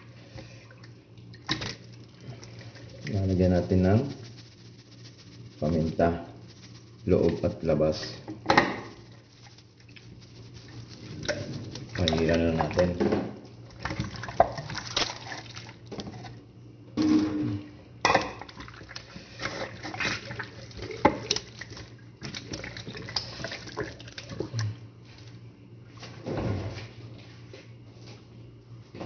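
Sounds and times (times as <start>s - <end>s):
wet squelches of raw chicken: 9.0s - 12.9s, 18.4s - 25.4s.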